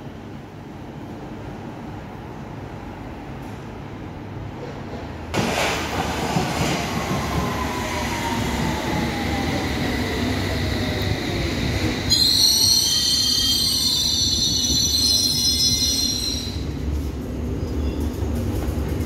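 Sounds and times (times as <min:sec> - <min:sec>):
train wheels rumbling: 0:03.4 - 0:19.0
wheel and brake squealing: 0:12.1 - 0:16.8.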